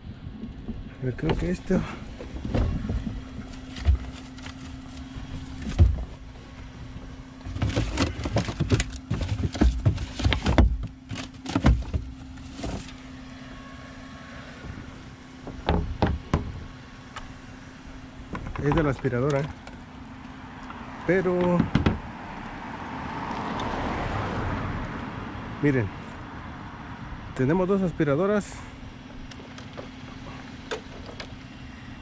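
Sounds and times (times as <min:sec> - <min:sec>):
steady low hum: 0:00.0 - 0:21.1
rustling bags and cardboard: 0:01.2 - 0:13.1.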